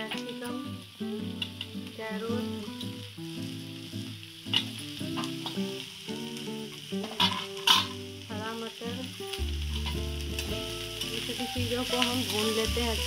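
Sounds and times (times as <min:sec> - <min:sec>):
vegetables sizzling in hot oil: 0:00.0 - 0:13.0
metal spoon scraping a pan: 0:07.0 - 0:08.0.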